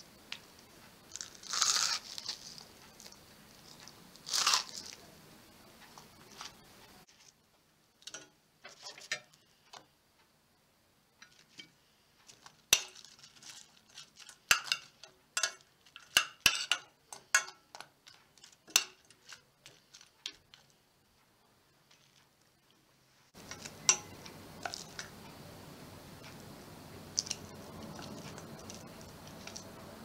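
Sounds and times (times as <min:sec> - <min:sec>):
metal spoon clinking on saucepan: 0:14.5 - 0:17.9, 0:18.6 - 0:19.2, 0:23.4 - 0:25.1.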